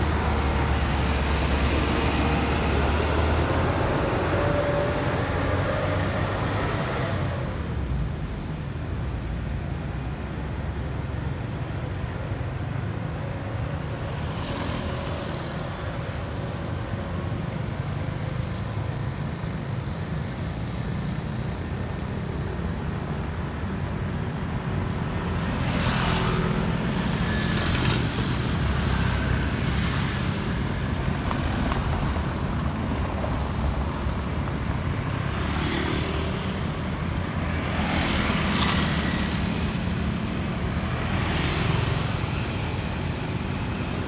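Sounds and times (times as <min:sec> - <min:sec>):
street traffic rumble: 0:00.0 - 0:44.0
motorbikes passing: 0:13.1 - 0:44.0.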